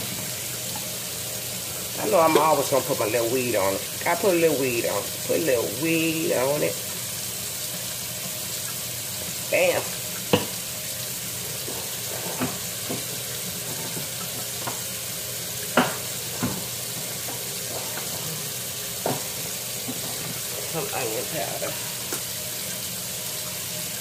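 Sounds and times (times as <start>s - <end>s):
shrimp sizzling on a grill: 0.0s - 24.0s.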